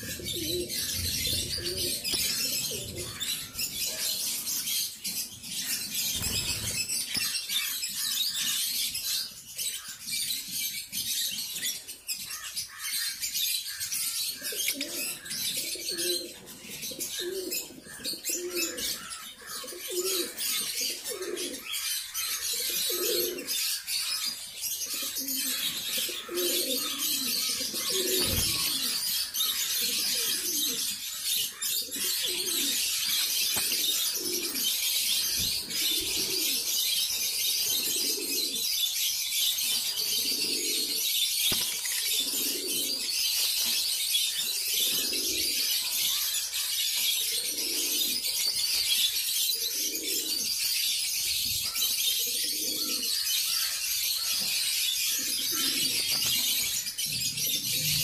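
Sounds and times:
lovebirds chattering: 0.0 - 8.6, 14.3 - 38.6, 51.6 - 58.0.

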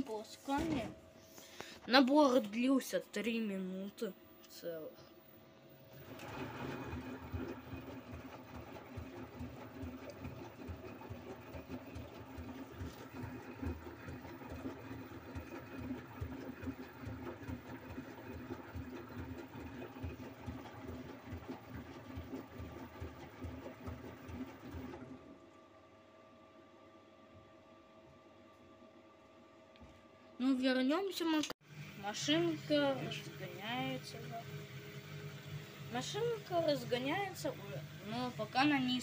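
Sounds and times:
washing machine motor hum: 0.0 - 39.0
water and laundry sloshing: 5.9 - 25.4, 32.0 - 39.0.

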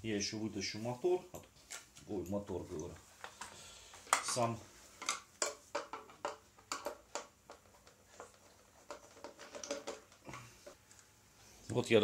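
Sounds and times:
plastic clicks and knocks: 5.0 - 10.8.

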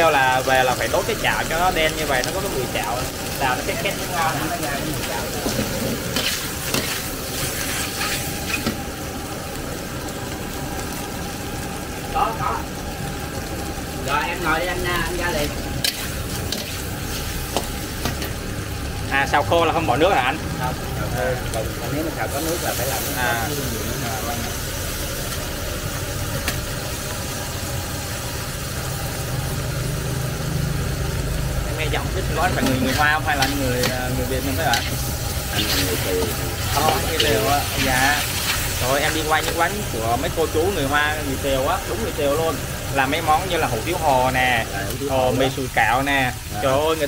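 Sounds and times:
gas burner roar: 0.0 - 47.0
noodles sizzling in wok: 0.0 - 47.0
metal spatula scraping wok: 5.4 - 8.8, 15.8 - 18.3, 32.6 - 39.6.

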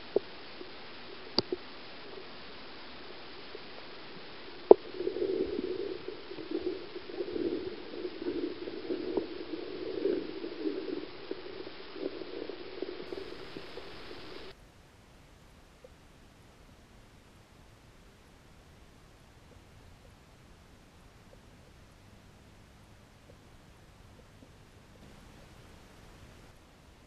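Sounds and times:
muffled underwater gurgling: 0.0 - 14.5, 17.2 - 27.0
stream water hissing: 0.0 - 14.6, 20.1 - 26.6.

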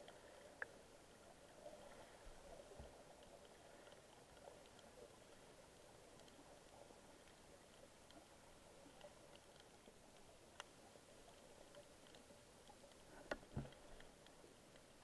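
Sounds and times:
faint ticks: 0.0 - 15.0
faint underwater ambience: 0.0 - 15.0
low thump: 13.5 - 13.8.

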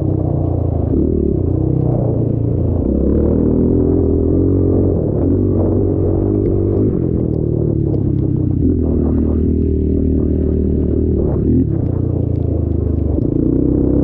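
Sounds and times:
engine running hard: 0.0 - 14.0.

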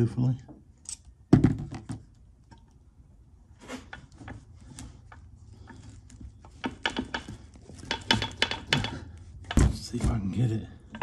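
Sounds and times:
light metal clicks and knocks: 3.9 - 10.0.

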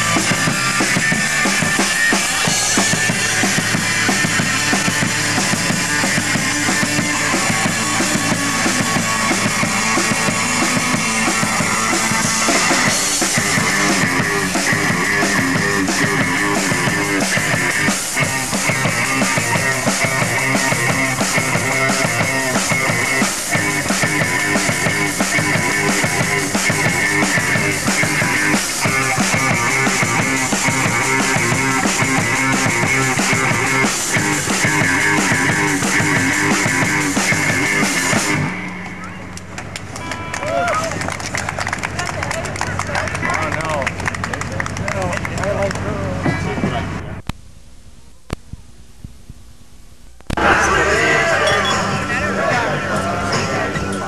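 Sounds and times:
drum kit with crashing cymbals: 0.0 - 38.7
electric guitar: 0.0 - 40.6.

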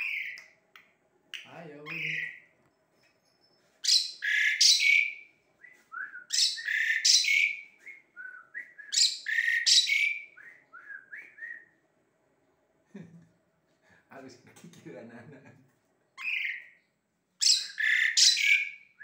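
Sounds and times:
starling singing: 0.0 - 0.4, 1.4 - 2.5, 3.8 - 5.3, 6.2 - 7.6, 8.9 - 10.4, 16.2 - 16.8, 17.4 - 18.9.

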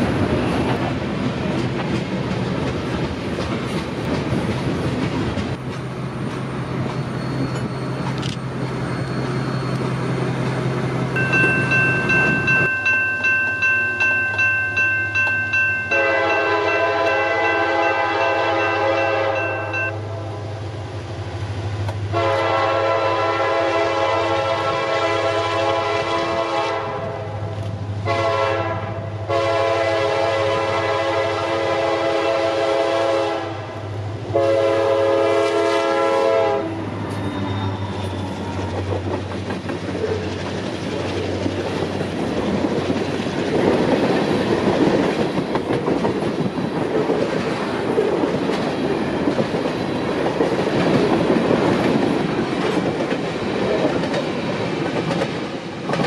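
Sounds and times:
train wheels clattering on rails: 0.0 - 19.9, 37.0 - 56.0
locomotive horn blasts: 15.9 - 20.3, 22.1 - 27.4, 28.0 - 38.3.

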